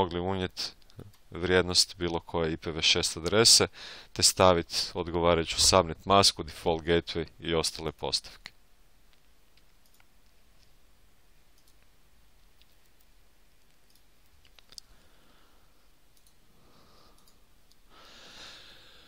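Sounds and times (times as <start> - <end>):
computer mouse clicks: 8.4 - 10.8, 11.5 - 15.0, 16.1 - 16.4, 17.1 - 17.8.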